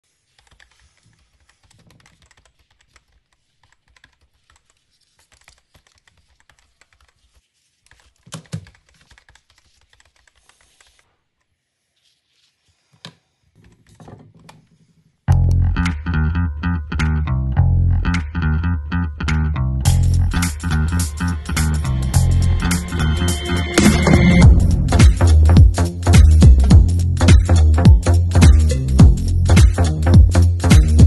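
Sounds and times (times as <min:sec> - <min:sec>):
music with guitar and bass: 0:15.3 - 0:31.0.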